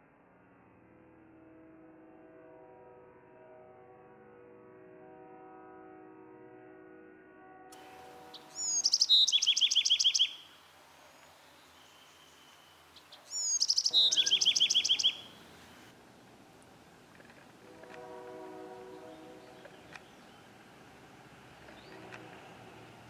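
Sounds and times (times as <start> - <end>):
wren singing trills: 8.2 - 15.8.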